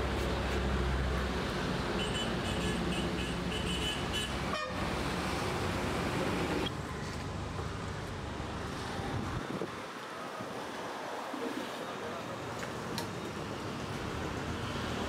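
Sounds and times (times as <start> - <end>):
street traffic noise: 0.0 - 15.0
vehicle horn blasts: 2.0 - 4.8.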